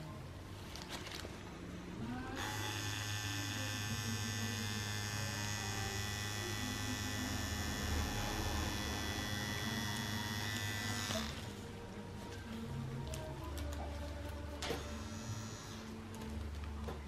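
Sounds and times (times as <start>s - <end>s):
tattoo machine humming: 2.4s - 11.6s, 14.7s - 16.0s.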